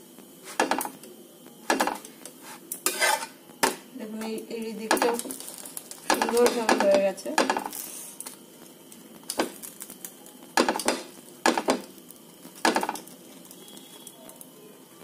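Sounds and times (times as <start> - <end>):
spatula scraping frying pan: 2.4 - 3.4.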